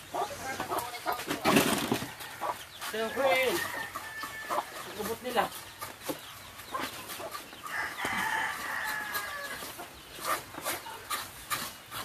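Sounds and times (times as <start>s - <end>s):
rooster crowing: 3.1s - 4.8s, 7.7s - 9.6s.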